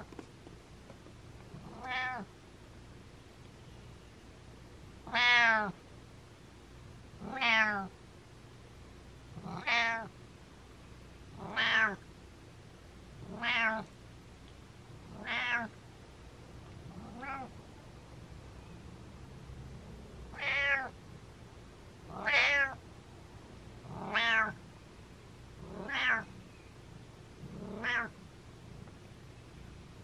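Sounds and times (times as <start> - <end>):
cat meowing: 1.6 - 2.3, 5.1 - 5.8, 7.2 - 7.9, 9.5 - 10.1, 11.4 - 12.0, 13.3 - 13.9, 15.1 - 15.8, 17.0 - 17.5, 20.3 - 21.0, 22.1 - 22.8, 23.9 - 24.6, 25.7 - 26.3, 27.6 - 28.1.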